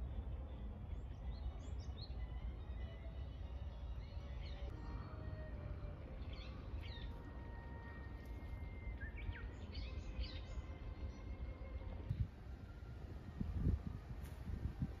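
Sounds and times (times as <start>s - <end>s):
small birds chirping: 0.0s - 5.5s, 6.1s - 12.4s
low outdoor rumble: 0.0s - 15.0s.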